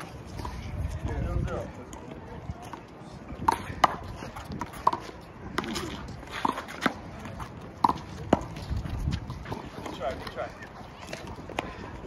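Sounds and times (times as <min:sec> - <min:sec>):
sneakers squeaking on concrete: 0:03.5 - 0:11.9.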